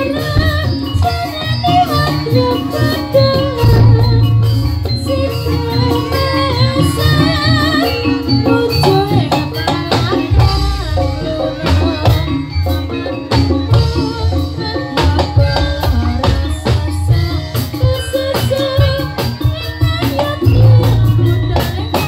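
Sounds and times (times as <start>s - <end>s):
loud steady drumming: 0.0s - 7.8s, 8.6s - 22.0s
jingling percussion: 0.0s - 22.0s
wavering ornamented melody: 0.6s - 9.3s
heavy bass: 3.5s - 6.7s, 20.6s - 22.0s.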